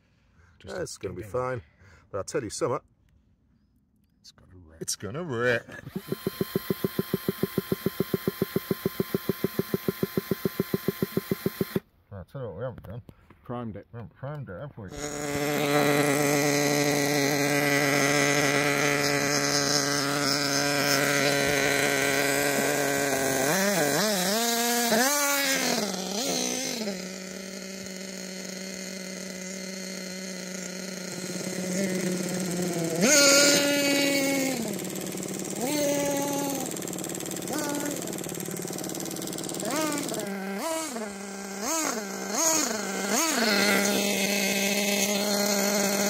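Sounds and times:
rc car engine idling and revving: 5.8 - 11.9, 14.9 - 46.0.

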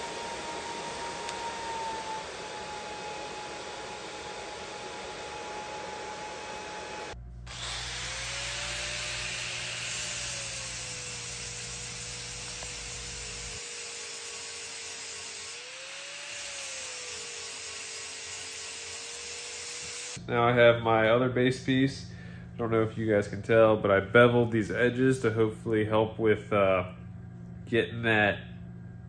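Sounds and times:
angle grinder grinding: 0.0 - 20.2
welding arc hissing: 7.6 - 20.2.

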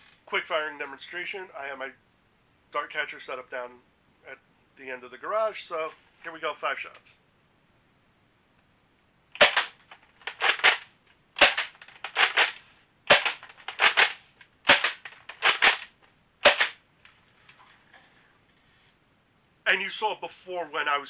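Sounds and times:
foam blaster shots: 11.4 - 11.7, 13.1 - 13.4, 16.4 - 16.8.

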